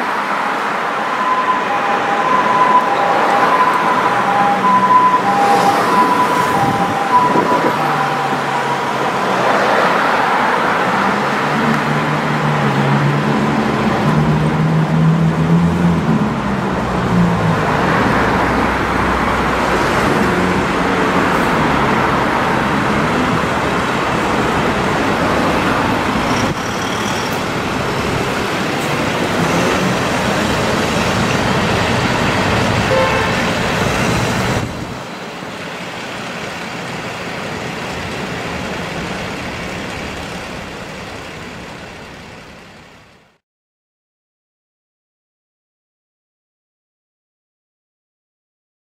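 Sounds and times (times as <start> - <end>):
road traffic passing: 0.0 - 43.4
heavy vehicle engine running: 18.4 - 43.4.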